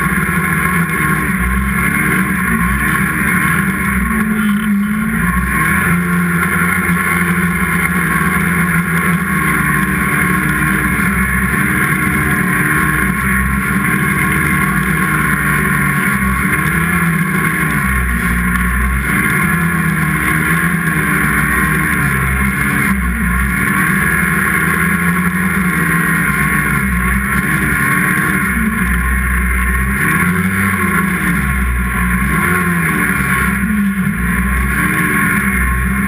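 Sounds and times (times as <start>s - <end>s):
snowmobile engine revving: 0.0s - 36.0s.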